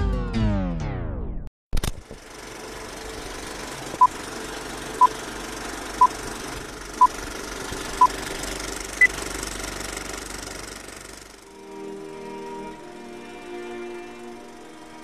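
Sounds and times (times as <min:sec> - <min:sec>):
film projector clatter: 0:01.8 - 0:11.5.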